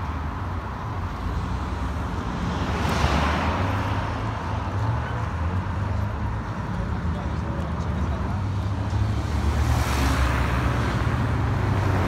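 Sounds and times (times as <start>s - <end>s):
car passing by: 8.9s - 12.0s.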